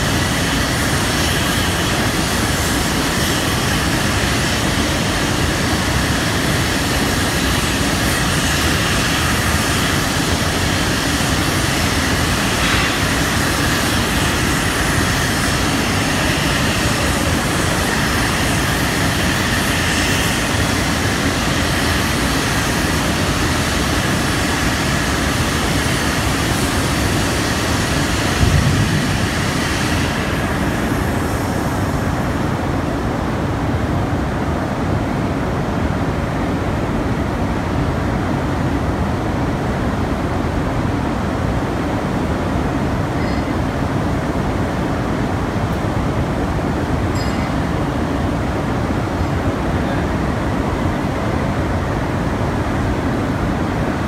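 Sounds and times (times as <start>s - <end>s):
furnace roar and hiss: 0.0s - 54.0s
loud rumble: 28.3s - 30.6s.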